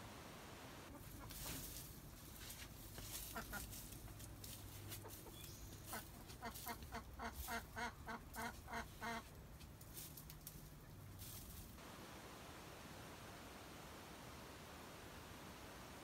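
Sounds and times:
hens clucking: 0.9 - 1.8, 3.0 - 9.5.

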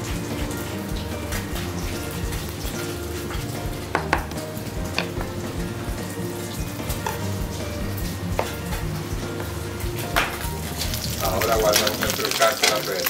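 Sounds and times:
butter sizzling in a frying pan: 0.0 - 13.0.

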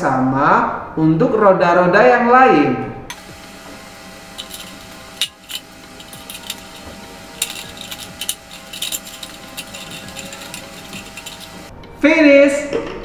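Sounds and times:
light clicks and taps of toy parts: 4.4 - 11.6.

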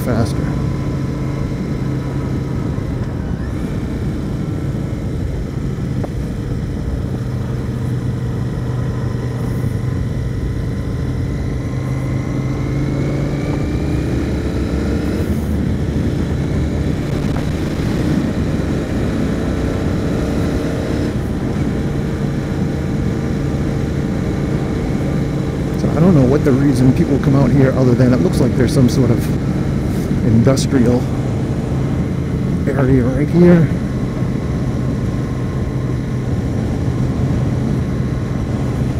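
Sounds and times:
motorcycle engine cruising: 0.0 - 38.9
wind and road noise: 0.0 - 38.9.

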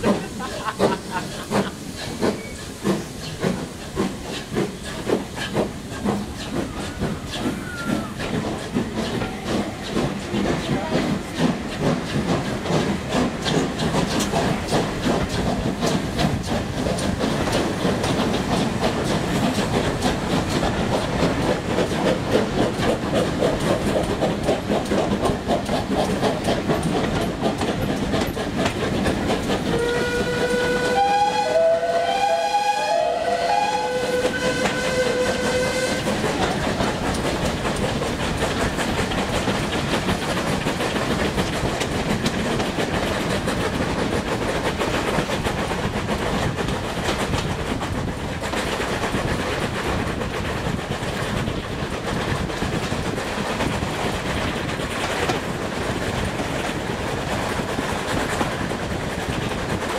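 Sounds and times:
train wheels clicking over rails: 0.0 - 59.9
steam locomotive whistle: 29.7 - 36.2.

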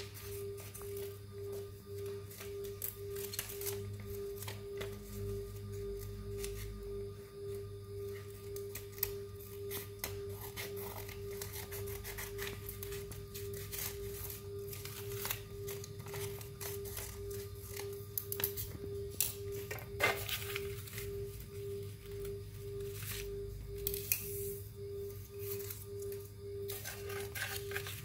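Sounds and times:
low hum: 0.0 - 28.0
steady pulsing tone: 0.0 - 28.0
scissors snipping paper: 8.5 - 21.1.

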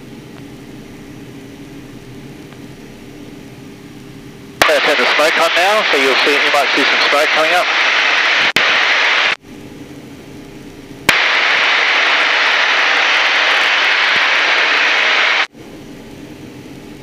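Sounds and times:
radial engine drone: 4.6 - 9.4, 10.9 - 15.5
rushing hiss of wind and engine: 4.6 - 9.4, 11.1 - 15.6.

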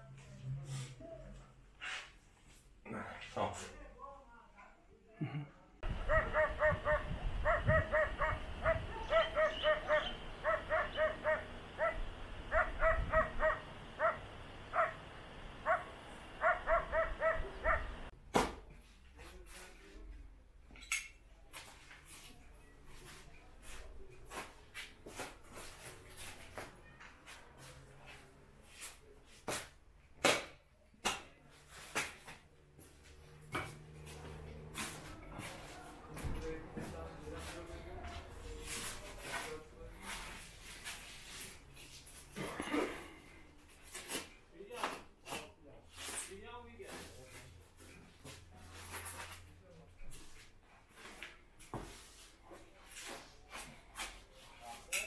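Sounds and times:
dog barking: 6.0 - 15.0, 15.6 - 18.0.

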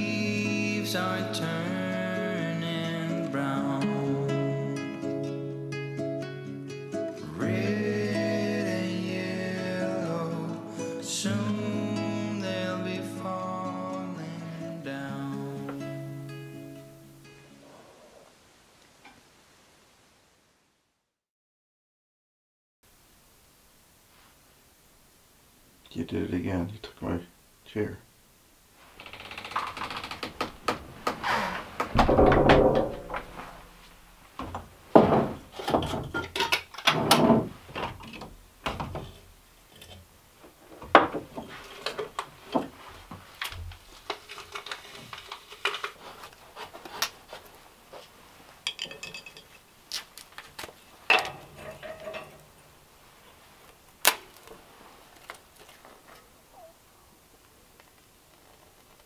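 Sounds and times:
objects being handled and set down: 30.6 - 52.6.

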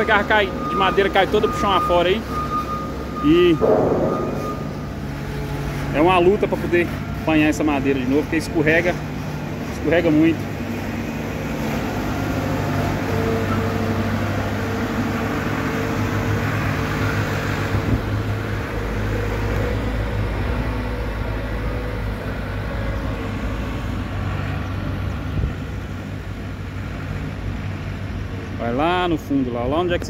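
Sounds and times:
diesel loader engine passing: 0.0 - 26.4
deep low rumble: 3.6 - 5.2.

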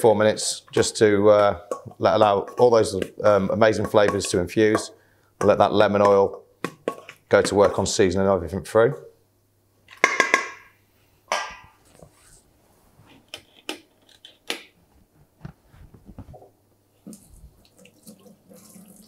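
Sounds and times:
tap water running into sink: 17.1 - 19.0.

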